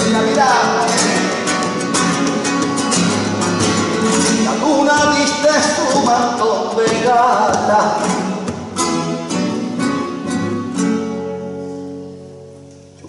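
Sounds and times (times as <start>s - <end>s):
man singing: 0.0s - 1.7s, 4.0s - 8.5s
acoustic guitars: 0.0s - 13.0s.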